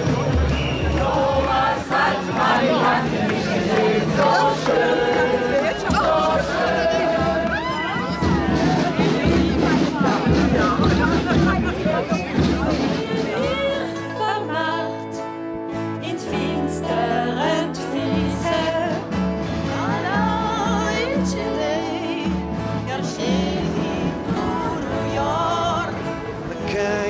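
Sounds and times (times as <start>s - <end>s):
person singing with vibrato: 16.0s - 27.0s.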